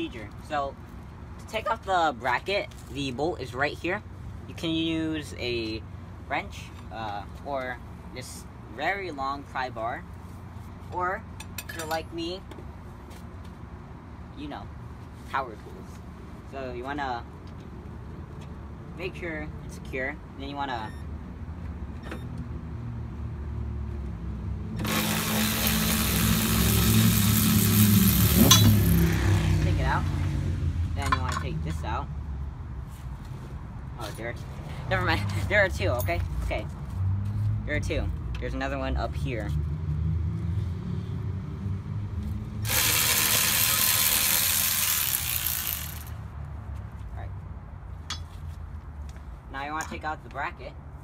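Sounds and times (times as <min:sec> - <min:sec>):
cordless power tool running: 0:24.8 - 0:29.1, 0:42.6 - 0:46.1.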